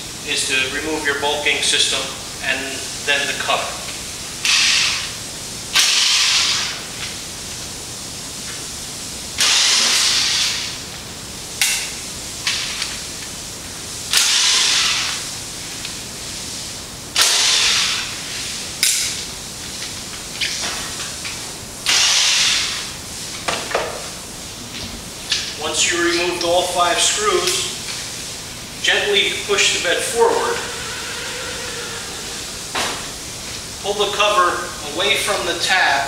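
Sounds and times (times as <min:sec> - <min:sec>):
power screwdriver running: 0:04.4 - 0:05.1, 0:09.4 - 0:10.7, 0:14.1 - 0:15.2, 0:17.2 - 0:18.1, 0:21.9 - 0:22.8.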